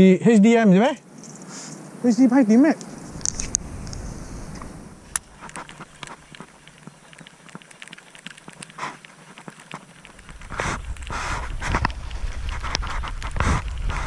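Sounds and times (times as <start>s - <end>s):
rustling noise: 2.9s - 14.0s.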